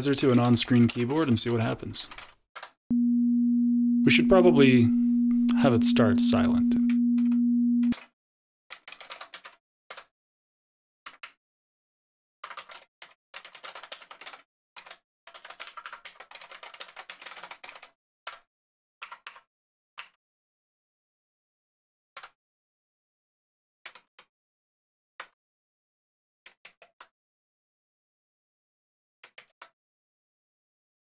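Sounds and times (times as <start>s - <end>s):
computer keyboard typing: 0.0s - 2.7s, 8.7s - 10.1s, 12.4s - 17.9s
sine tone: 2.9s - 7.9s.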